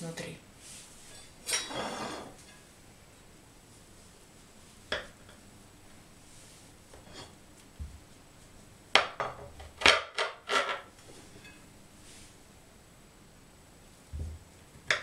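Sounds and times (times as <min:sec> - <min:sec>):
knife scraping on glass board: 0:01.0 - 0:02.4.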